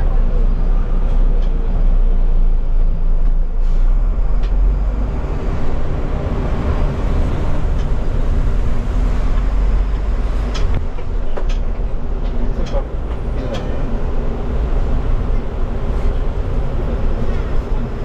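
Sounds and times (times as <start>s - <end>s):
bus running rumble: 0.0s - 18.0s.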